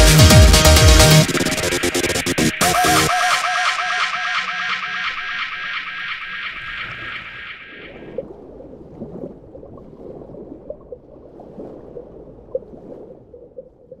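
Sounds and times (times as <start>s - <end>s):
electronic soundtrack: 0.0s - 7.9s
underwater gurgling and bubbling: 7.8s - 14.0s.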